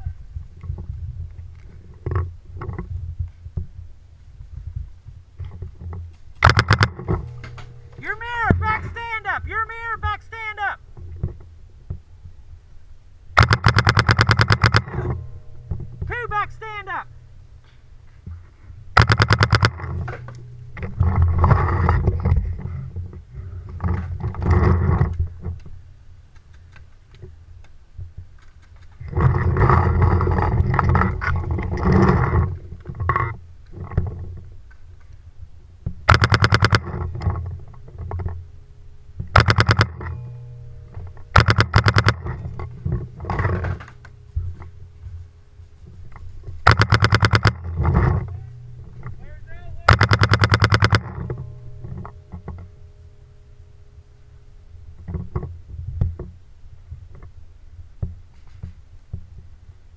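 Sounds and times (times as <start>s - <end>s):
paintball marker firing: 19.0s - 19.8s, 36.1s - 36.9s, 39.4s - 40.0s, 46.7s - 47.6s.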